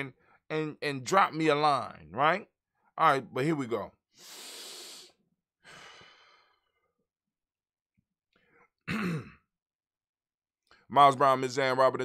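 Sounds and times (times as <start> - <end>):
man breathing in and sighing: 4.1 - 6.9.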